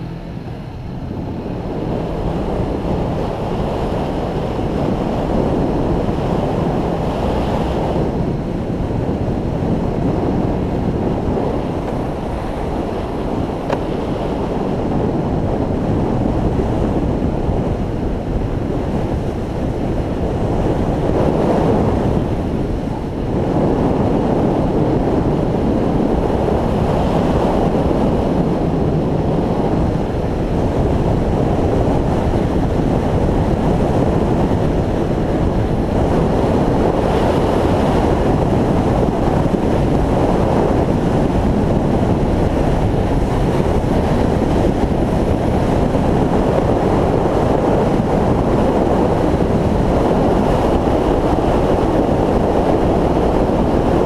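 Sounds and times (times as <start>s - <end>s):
motorcycle engine: 0.0s - 54.0s
road noise: 0.0s - 54.0s
wind rushing over microphone: 0.0s - 54.0s.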